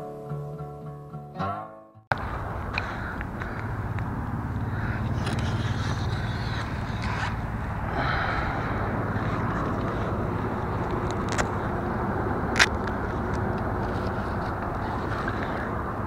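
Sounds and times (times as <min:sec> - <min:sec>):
brush and grass rustling: 0:02.1 - 0:16.0
wind rumble: 0:02.1 - 0:16.0
camera handling noise: 0:05.0 - 0:07.5, 0:09.4 - 0:15.6.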